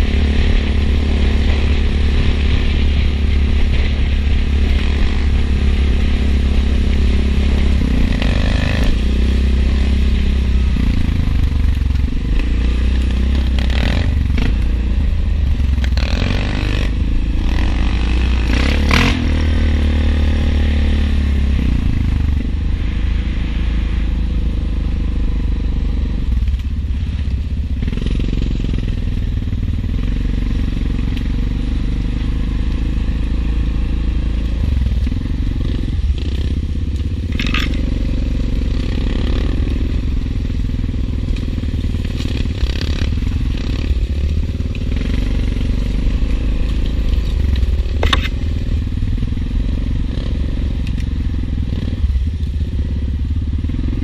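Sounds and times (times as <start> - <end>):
atv engine rumbling: 0.0 - 54.0
dry leaves crackling under tyres: 30.0 - 53.7.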